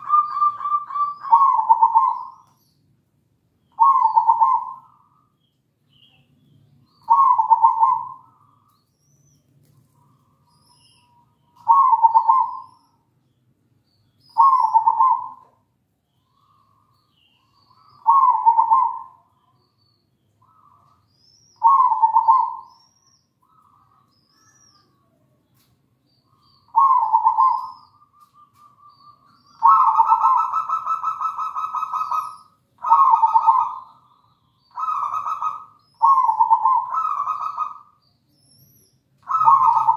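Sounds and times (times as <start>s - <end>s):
dove cooing: 0.0s - 2.5s, 3.8s - 5.1s, 7.0s - 8.4s, 11.6s - 12.8s, 14.4s - 15.6s, 17.8s - 19.2s, 21.6s - 22.8s, 26.7s - 34.0s, 34.7s - 38.0s, 39.2s - 39.9s.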